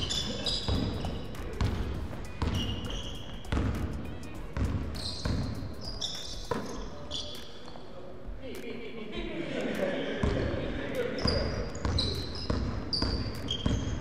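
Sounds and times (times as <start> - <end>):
sneakers squeaking on court: 0.0 - 7.9, 11.2 - 14.0
basketball bouncing on wooden floor: 0.1 - 5.6, 11.8 - 14.0.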